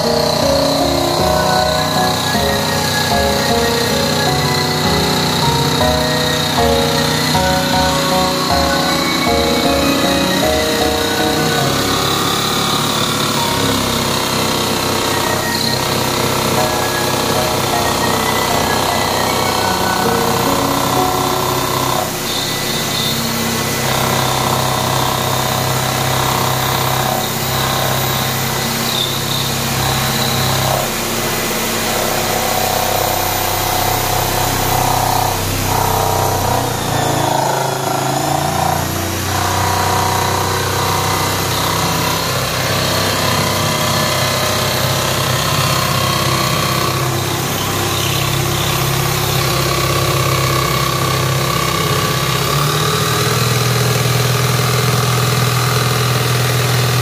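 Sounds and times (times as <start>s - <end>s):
jigsaw sawing through wood: 0.0s - 57.0s.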